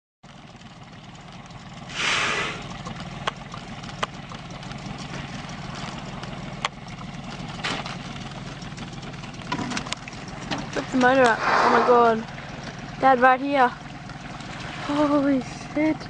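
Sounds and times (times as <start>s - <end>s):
outboard motor idling: 0.2s - 16.0s
loud short whoosh: 1.9s - 2.6s, 11.2s - 12.2s.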